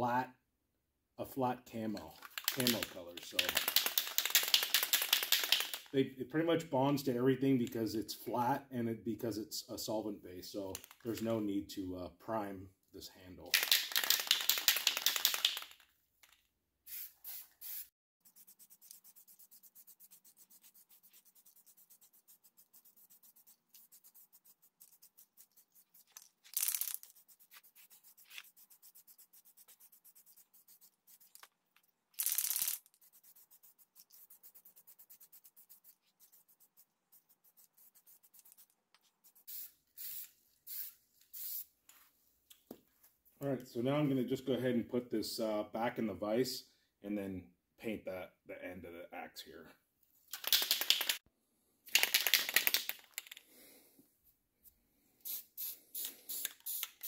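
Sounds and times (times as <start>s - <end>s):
spray paint can hissing: 2.4s - 5.9s, 13.6s - 15.8s, 16.9s - 25.6s, 32.2s - 36.0s, 39.3s - 41.7s, 55.2s - 57.0s.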